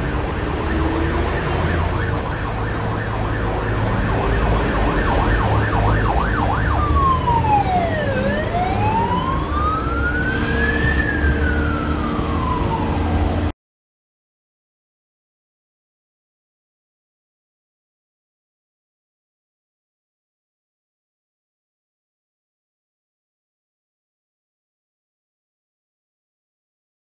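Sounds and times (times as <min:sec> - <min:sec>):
ambulance siren: 0:00.0 - 0:13.6
traffic and engine noise: 0:00.0 - 0:13.6.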